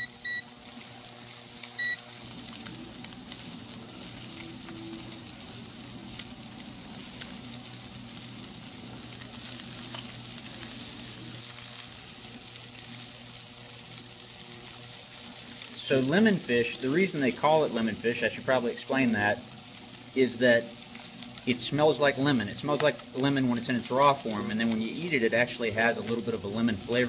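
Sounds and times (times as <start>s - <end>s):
short beep: 0.0s - 0.4s
fish sizzling in hot oil: 0.0s - 27.0s.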